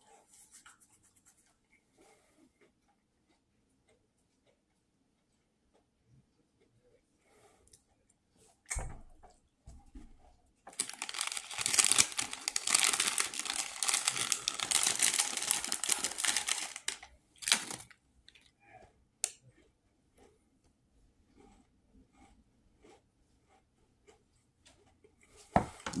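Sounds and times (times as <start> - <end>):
packaging crinkling: 10.7 - 18.0.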